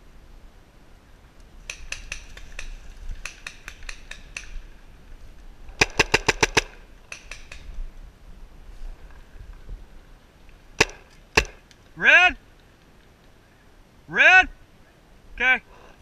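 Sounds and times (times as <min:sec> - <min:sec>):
paintball marker shots: 0:01.6 - 0:04.6, 0:05.8 - 0:07.8, 0:10.8 - 0:11.7.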